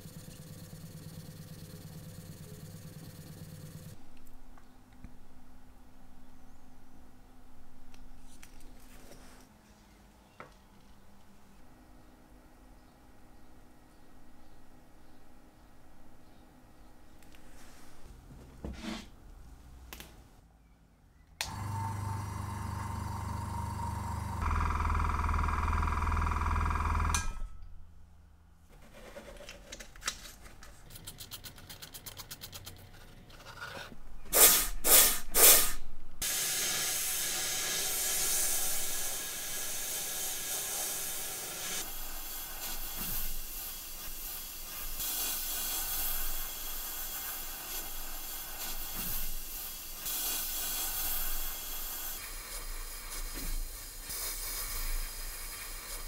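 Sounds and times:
air bursts: 34.3s - 56.0s
compressed air sandblaster hissing: 34.4s - 56.0s.

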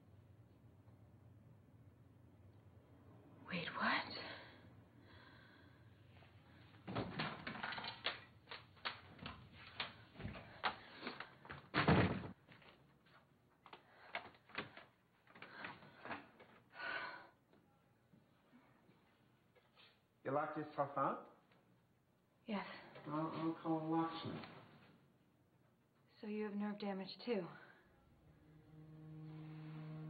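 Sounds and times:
door closing thud: 11.7s - 12.4s.

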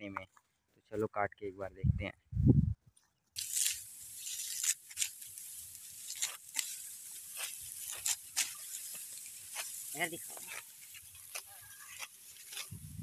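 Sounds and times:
dry rustling of stalks: 3.0s - 13.0s
sickle cutting rice stalks: 3.4s - 13.0s.

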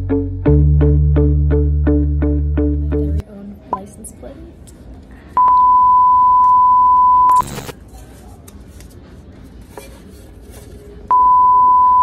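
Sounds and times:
censor beep tone: 5.4s - 7.7s, 11.1s - 12.0s
static hiss burst: 7.3s - 7.8s.

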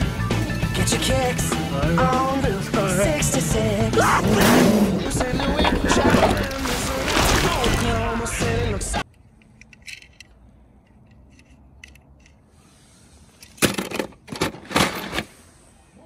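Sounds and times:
toy cars clinking and rattling: 9.0s - 12.5s.

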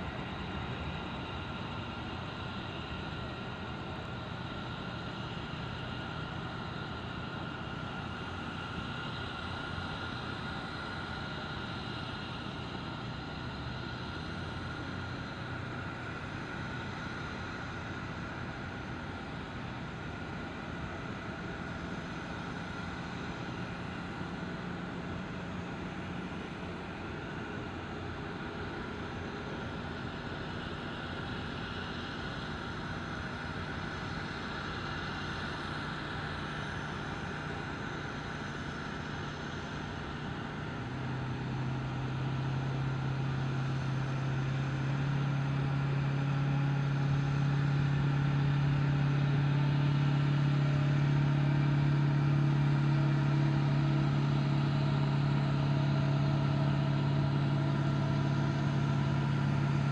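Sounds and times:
tow tractor engine drone: 0.0s - 59.9s.

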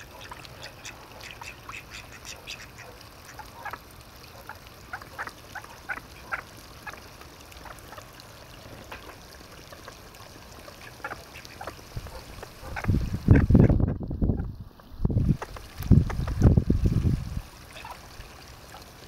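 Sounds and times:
ducks quacking: 0.0s - 3.8s, 10.8s - 14.5s.

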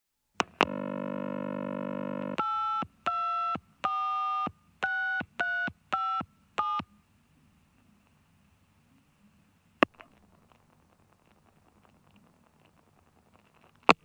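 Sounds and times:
telephone dial tone: 0.6s - 6.8s
touch-tone dialling beeps: 2.1s - 6.9s.

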